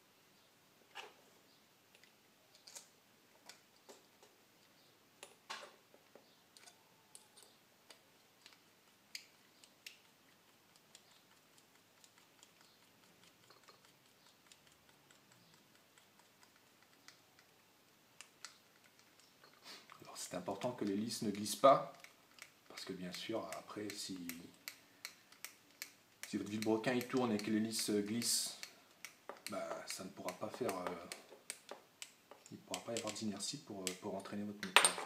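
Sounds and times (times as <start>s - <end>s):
small clicks of plastic parts: 1.9s - 10.1s, 18.2s - 35.0s.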